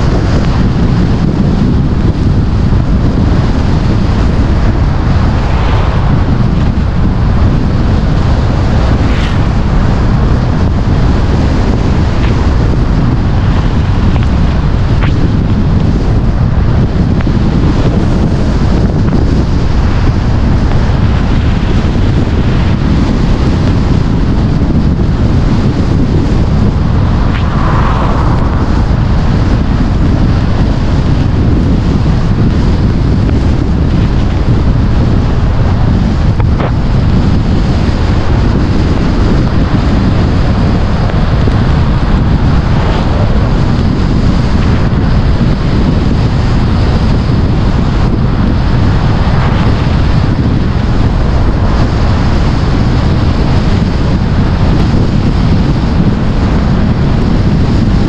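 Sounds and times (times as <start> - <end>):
tyre noise on wet road: 0.0 - 57.4
wind buffeting microphone: 0.0 - 58.0
car passing: 3.8 - 10.1, 26.1 - 30.6.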